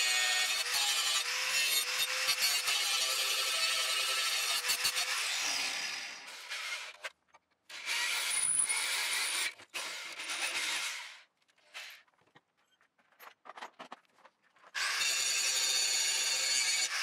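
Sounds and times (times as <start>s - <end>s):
electric drill boring through steel: 14.8s - 17.0s.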